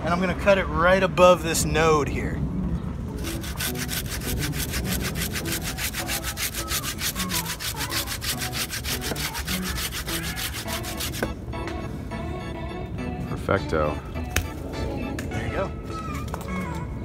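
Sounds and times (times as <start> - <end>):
hand saw cutting branch: 3.2 - 11.2.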